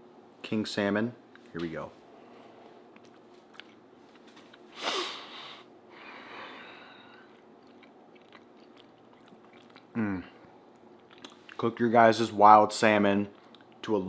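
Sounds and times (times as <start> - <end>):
man chewing food: 2.2 - 11.7, 13.2 - 13.9.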